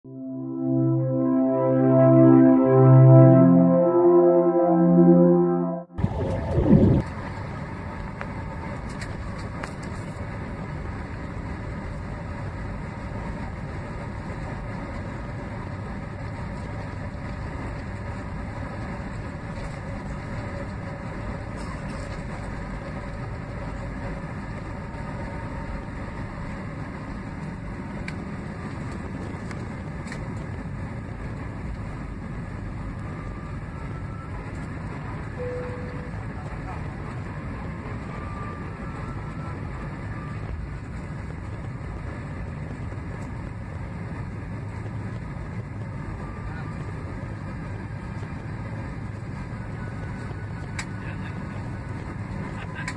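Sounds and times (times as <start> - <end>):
jet engines and rushing air: 0.0 - 9.3, 20.3 - 52.9.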